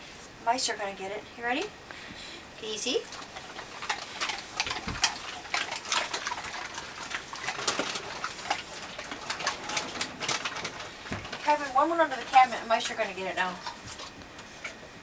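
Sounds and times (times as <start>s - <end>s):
dogs crunching hard treats: 2.9s - 15.0s.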